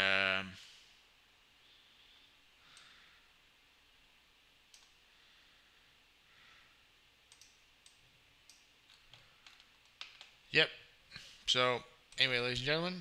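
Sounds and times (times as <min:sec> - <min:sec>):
computer mouse clicks: 0:04.7 - 0:05.0, 0:07.3 - 0:10.4.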